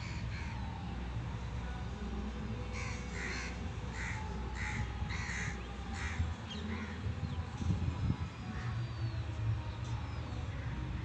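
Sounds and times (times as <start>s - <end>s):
crows cawing: 2.8s - 7.0s.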